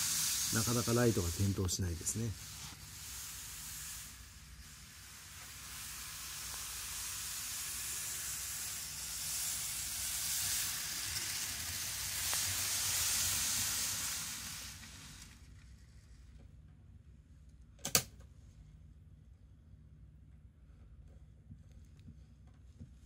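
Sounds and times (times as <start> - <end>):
model train running on track: 0.0 - 15.4.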